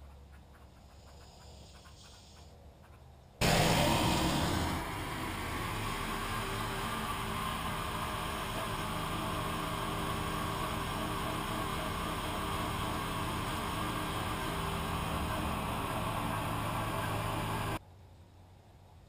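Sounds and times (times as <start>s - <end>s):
small tractor engine running: 3.4s - 17.8s.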